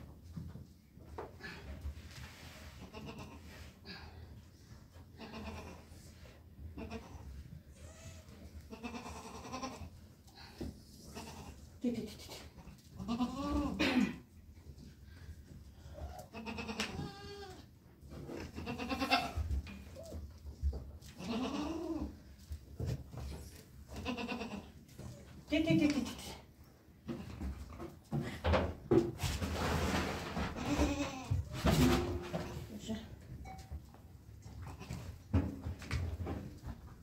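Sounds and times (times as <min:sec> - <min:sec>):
goats bleating: 0:08.7 - 0:09.9, 0:16.3 - 0:17.6, 0:18.6 - 0:19.4, 0:21.2 - 0:22.1, 0:24.0 - 0:24.7.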